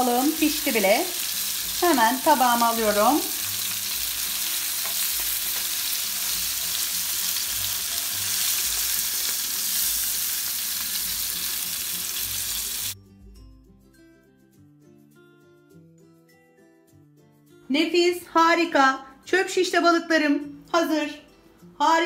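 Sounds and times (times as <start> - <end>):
fish sizzling in hot oil: 0.0 - 13.0
faint background music: 0.0 - 22.0.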